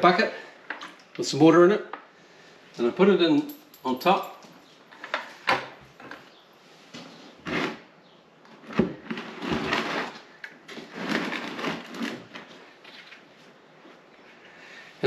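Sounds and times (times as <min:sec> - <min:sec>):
plastic scraping against plastic: 0:08.5 - 0:13.3.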